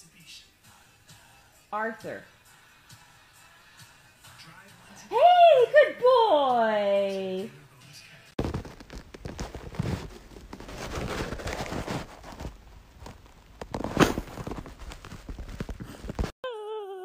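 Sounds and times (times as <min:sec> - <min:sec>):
scratchy rustling and crackling: 0:08.4 - 0:16.4.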